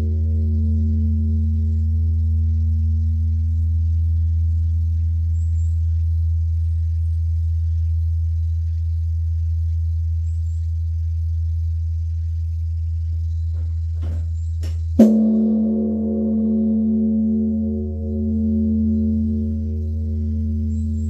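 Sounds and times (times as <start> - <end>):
bronze temple bell ringing: 0.0 - 2.5, 15.0 - 21.0
steady low hum: 0.0 - 21.0.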